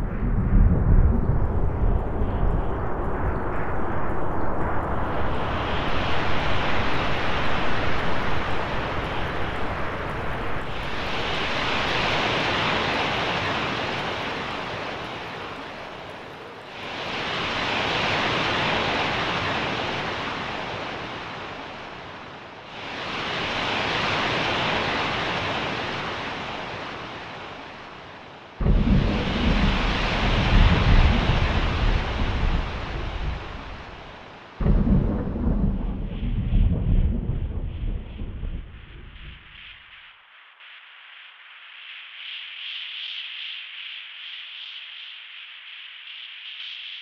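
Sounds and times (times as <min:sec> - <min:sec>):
low rumble: 0:00.0 - 0:11.6, 0:28.6 - 0:39.8
surf washing in: 0:00.0 - 0:47.0.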